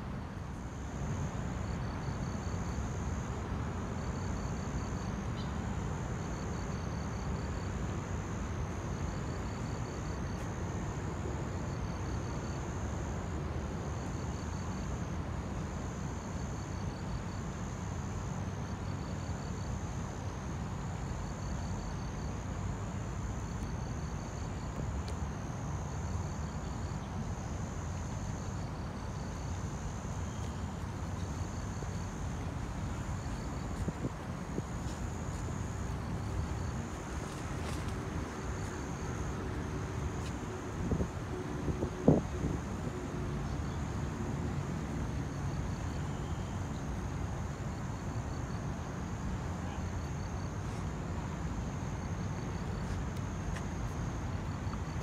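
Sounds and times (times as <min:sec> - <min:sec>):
insects trilling: 0:14.0 - 0:55.0.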